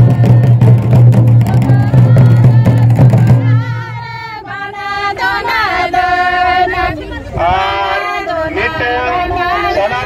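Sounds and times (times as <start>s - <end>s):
loud drum-driven music: 0.0s - 4.2s
women singing in unison: 0.0s - 10.0s.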